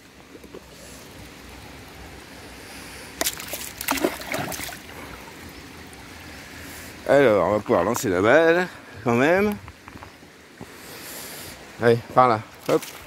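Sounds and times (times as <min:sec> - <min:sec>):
shallow river water running: 0:00.0 - 0:13.0
dog splashing through water: 0:03.2 - 0:04.8.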